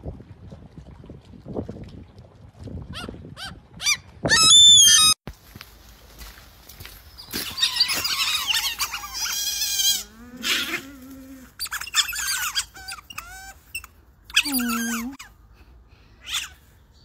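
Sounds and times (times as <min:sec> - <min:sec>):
otters squeaking and chirping: 0:07.2 - 0:10.9, 0:11.6 - 0:15.3.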